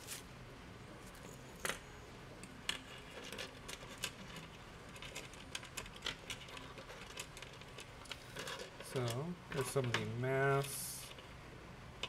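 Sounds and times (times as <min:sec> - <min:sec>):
small metal parts clicking on table: 0:02.7 - 0:11.2.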